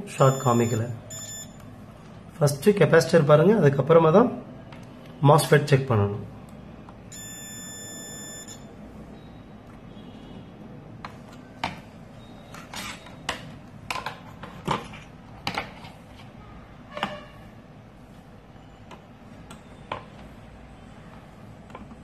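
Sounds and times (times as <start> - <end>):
multimeter buzzer beeping: 0.2 - 1.6, 7.1 - 8.7.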